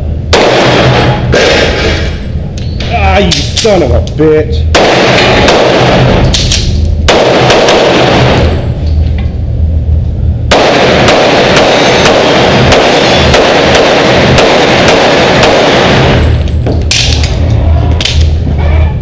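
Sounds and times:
pistol gunshots: 0:00.3 - 0:02.2, 0:04.7 - 0:08.7, 0:10.5 - 0:17.4.

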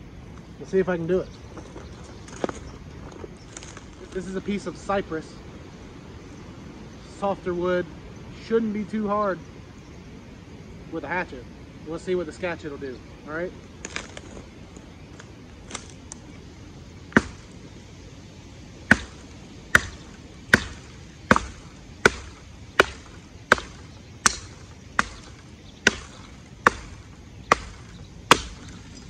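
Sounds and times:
hatchet chopping wood: 0:17.1 - 0:17.6, 0:18.9 - 0:29.0.

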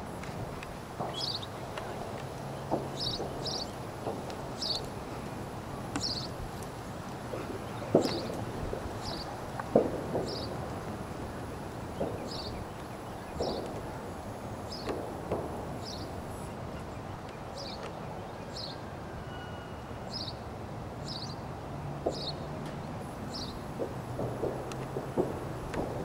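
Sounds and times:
hoofbeats on sand: 0:00.0 - 0:14.0
steady outdoor hiss: 0:00.0 - 0:26.0
bird chirping: 0:01.0 - 0:03.8, 0:04.5 - 0:05.2, 0:05.9 - 0:06.4, 0:07.3 - 0:09.4, 0:10.2 - 0:10.6, 0:11.5 - 0:13.7, 0:23.3 - 0:23.8.

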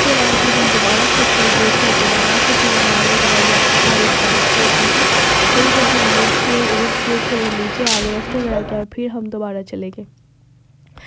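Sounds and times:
firework fountain hissing: 0:00.0 - 0:08.8.

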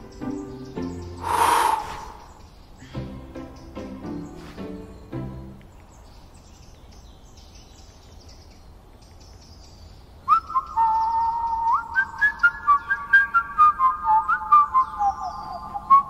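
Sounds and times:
person whistling a tune: 0:10.3 - 0:16.0.

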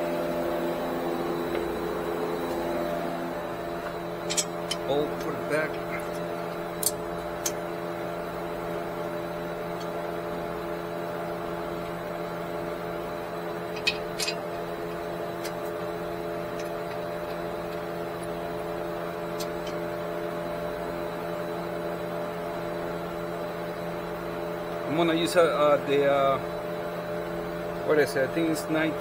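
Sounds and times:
steady mechanical hum: 0:00.0 - 0:29.0
tools clicking: 0:04.2 - 0:06.1, 0:13.8 - 0:14.4.

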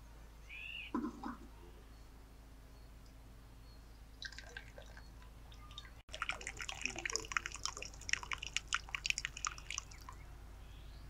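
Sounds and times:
hot water pouring into glass: 0:06.1 - 0:10.1.

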